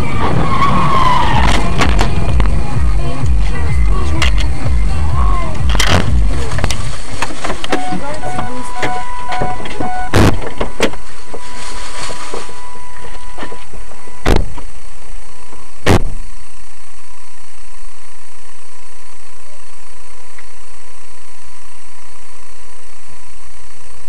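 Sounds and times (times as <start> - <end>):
sharp thumps: 0.0 - 14.7, 15.8 - 16.2
car interior hum: 0.0 - 24.0.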